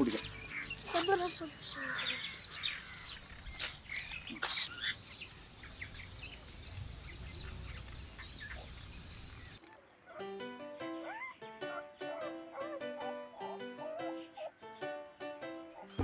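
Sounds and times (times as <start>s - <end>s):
small birds chirping: 0.0s - 10.2s.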